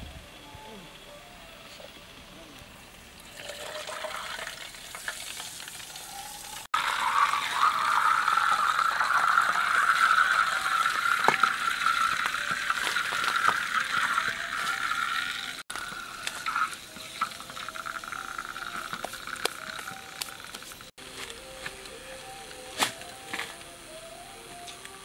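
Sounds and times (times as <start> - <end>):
cola fizzing and sizzling: 3.2 - 20.9.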